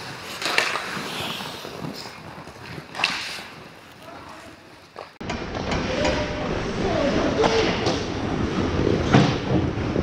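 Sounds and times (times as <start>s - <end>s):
skates scraping ice: 0.0s - 5.2s.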